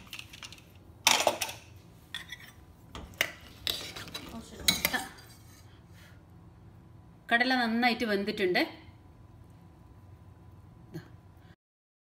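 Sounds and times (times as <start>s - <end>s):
ladle scraping metal pot: 1.3s - 5.8s.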